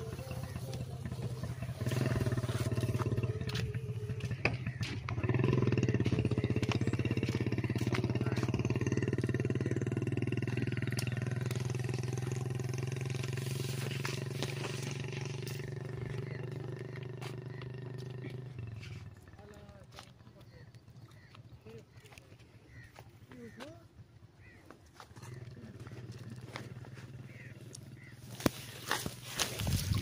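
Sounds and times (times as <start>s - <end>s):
engine low drone: 0.0s - 30.0s.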